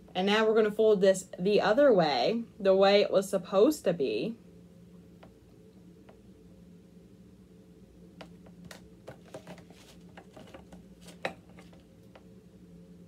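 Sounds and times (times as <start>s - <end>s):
soft rustling of knitted fabric: 9.3s - 11.8s.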